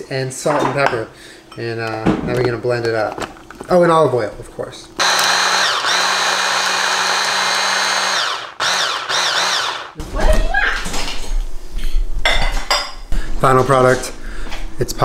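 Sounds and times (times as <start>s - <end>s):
electric blender whining: 5.0s - 10.1s.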